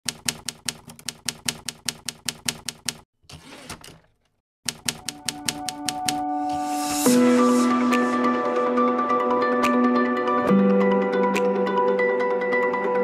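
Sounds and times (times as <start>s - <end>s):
typewriter keys striking: 0.0s - 3.0s, 4.7s - 6.2s.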